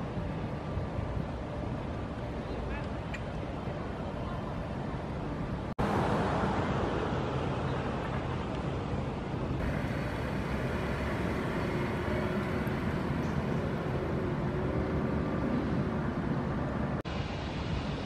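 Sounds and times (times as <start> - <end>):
traffic noise: 0.0 - 18.0
car driving by: 9.6 - 16.6.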